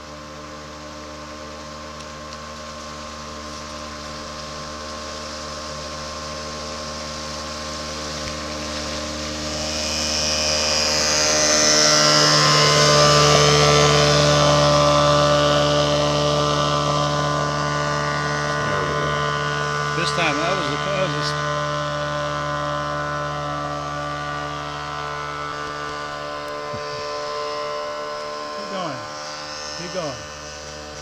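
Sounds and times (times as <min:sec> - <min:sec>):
outboard motor running: 0:00.0 - 0:31.0
hiss of wake spray: 0:00.1 - 0:12.2.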